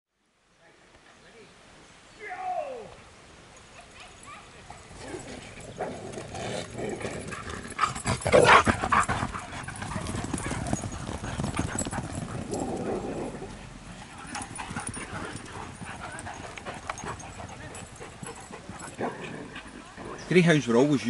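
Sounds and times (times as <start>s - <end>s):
dogs' paws pattering on grass: 3.5s - 21.0s.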